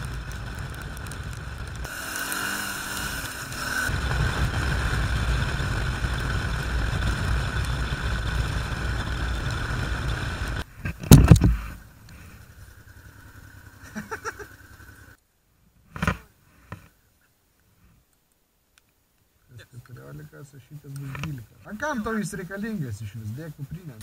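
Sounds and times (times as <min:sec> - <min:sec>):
wind and road noise: 0:00.0 - 0:13.8
motorcycle engine rumble: 0:00.0 - 0:15.2.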